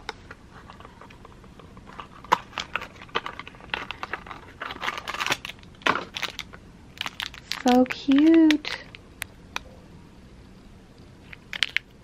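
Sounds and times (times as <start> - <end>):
packaging crinkling: 0.6 - 9.0, 11.3 - 11.9.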